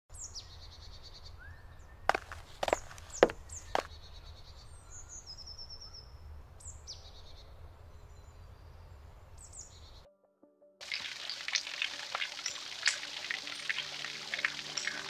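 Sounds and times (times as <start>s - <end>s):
small birds chirping: 0.1s - 10.0s, 10.9s - 15.0s
footstep on gravel: 2.1s - 3.9s.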